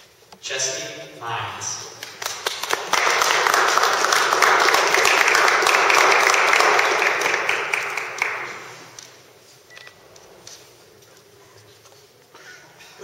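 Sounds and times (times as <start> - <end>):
audience applause: 2.0 - 9.0.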